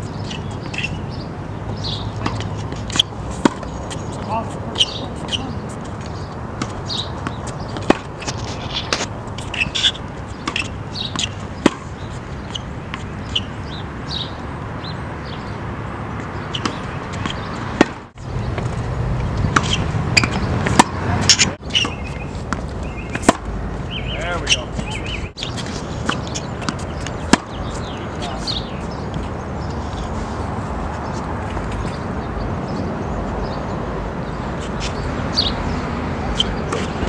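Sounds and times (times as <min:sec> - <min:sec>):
steady background noise: 0:00.0 - 0:37.0
racket striking tennis balls: 0:00.1 - 0:01.1, 0:01.8 - 0:13.7, 0:16.2 - 0:18.8, 0:19.4 - 0:23.6, 0:24.3 - 0:29.3, 0:36.3 - 0:37.0
balls bouncing on hard court: 0:01.7 - 0:13.5, 0:16.2 - 0:18.8, 0:19.4 - 0:23.5, 0:24.2 - 0:29.3.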